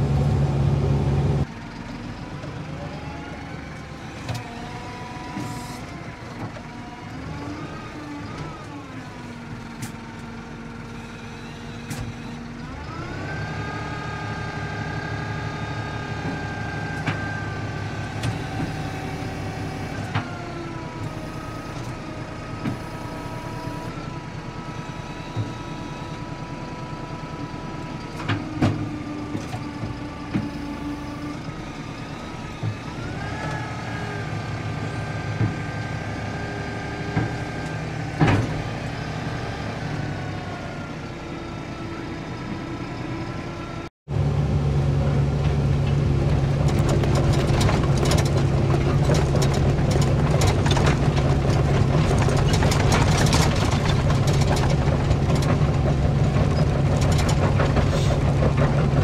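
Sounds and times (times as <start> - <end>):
excavator engine and hydraulics: 0.0 - 59.0.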